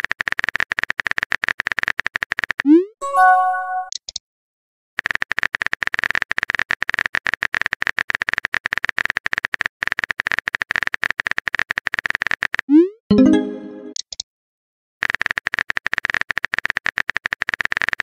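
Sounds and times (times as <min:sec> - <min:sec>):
rapid keyboard typing clicks: 0:00.0 - 0:02.7, 0:05.0 - 0:12.7, 0:15.0 - 0:18.0
message received chime: 0:03.0 - 0:03.9, 0:13.1 - 0:14.0
high blips: 0:12.7 - 0:14.0.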